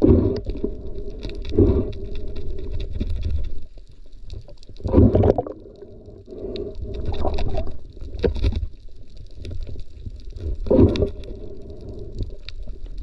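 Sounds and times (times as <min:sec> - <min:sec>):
muffled underwater water rumble: 0:00.0 - 0:13.0
water gurgling: 0:04.3 - 0:13.0
faint ticks: 0:05.6 - 0:13.0.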